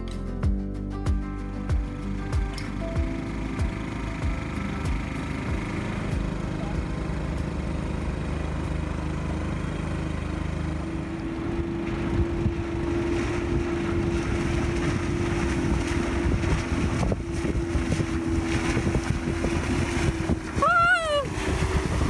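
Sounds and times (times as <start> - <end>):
outboard motor droning: 1.3 - 22.0
wind buffeting microphone: 10.0 - 22.0.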